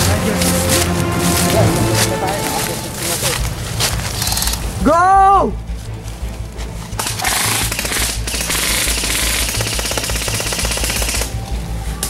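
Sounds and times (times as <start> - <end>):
airsoft guns firing bursts: 7.2 - 11.4.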